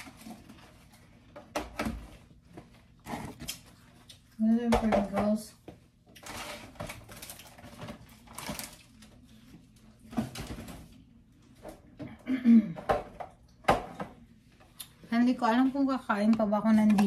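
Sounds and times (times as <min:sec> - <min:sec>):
rustling of things handled: 0:00.0 - 0:12.1.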